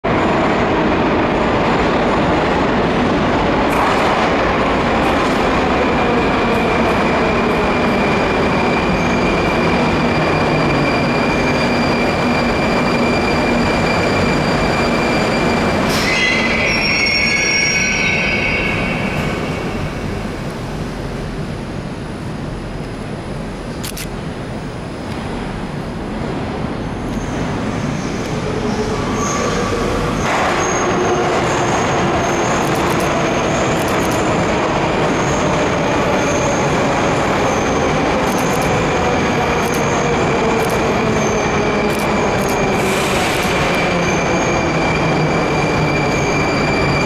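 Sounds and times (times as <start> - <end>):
train wheel rumble and whine: 0.0 - 47.0
brake squeal: 8.7 - 19.6.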